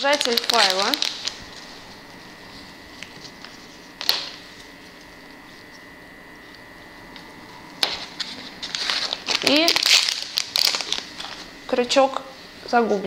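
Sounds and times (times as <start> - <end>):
faint high whine: 0.0 - 13.0.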